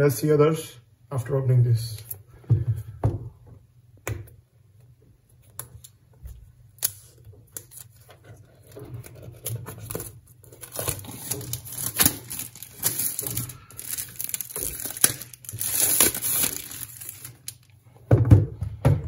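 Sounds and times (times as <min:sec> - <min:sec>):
plastic film crinkling and tearing: 0:06.8 - 0:17.8.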